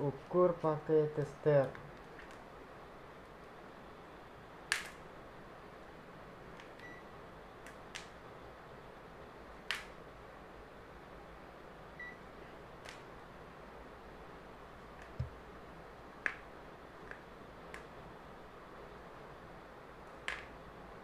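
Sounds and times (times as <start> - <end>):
faint steady hiss: 0.0 - 21.0.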